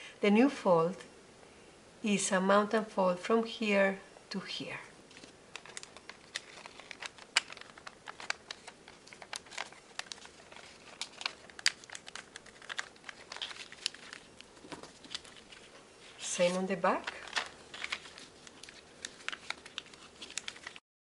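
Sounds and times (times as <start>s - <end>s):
paper folding crackles and rustles: 5.1s - 20.8s.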